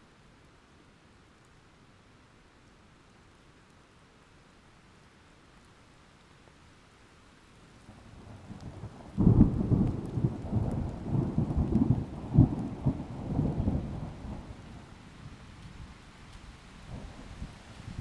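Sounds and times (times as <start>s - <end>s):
thunder rumbling: 8.0s - 14.9s.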